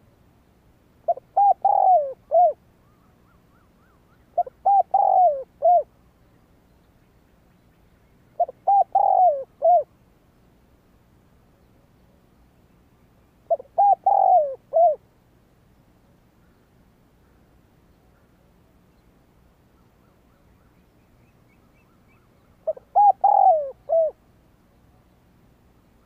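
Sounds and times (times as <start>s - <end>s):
dove cooing: 1.0s - 5.9s, 8.4s - 9.9s, 13.5s - 15.1s, 22.6s - 24.2s.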